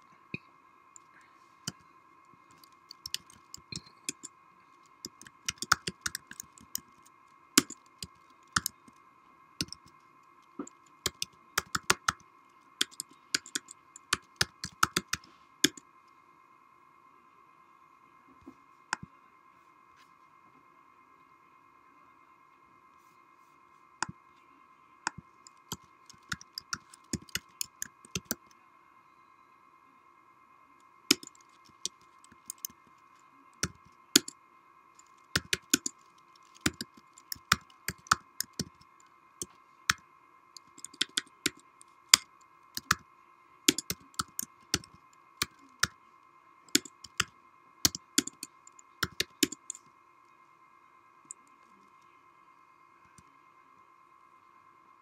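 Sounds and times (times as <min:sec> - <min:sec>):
faint steady whine: 0:00.0 - 0:55.0
sharp clicks: 0:01.7 - 0:09.0, 0:09.6 - 0:15.8, 0:25.1 - 0:28.5, 0:31.1 - 0:34.4, 0:35.0 - 0:40.0, 0:40.6 - 0:43.0, 0:43.7 - 0:46.0, 0:46.7 - 0:49.9.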